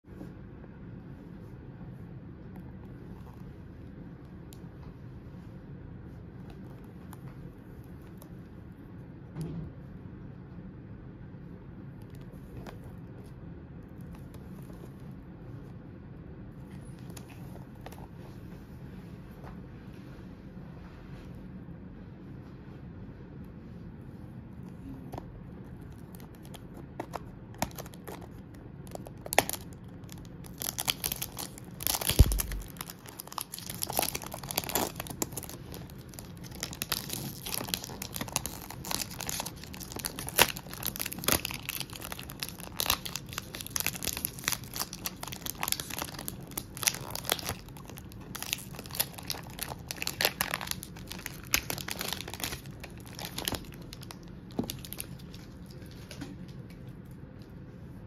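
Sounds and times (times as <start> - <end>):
cellophane crinkling: 25.2 - 56.2.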